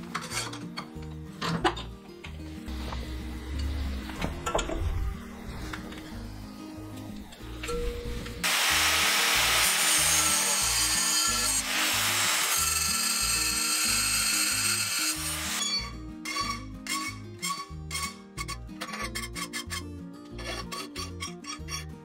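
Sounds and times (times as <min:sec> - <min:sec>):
background music with steady beat: 0:00.0 - 0:22.0
angle grinder grinding steel: 0:08.4 - 0:18.2.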